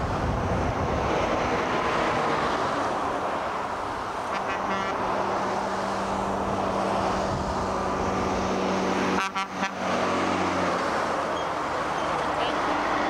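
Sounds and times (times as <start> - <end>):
truck engine drone: 0.0 - 13.0
tyre and road noise: 0.0 - 13.0.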